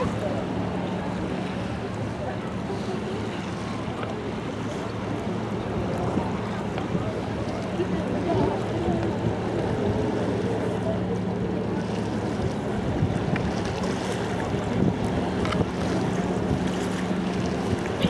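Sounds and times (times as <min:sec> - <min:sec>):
boat engine hum: 0:00.0 - 0:18.0
wind buffeting microphone: 0:11.8 - 0:18.0.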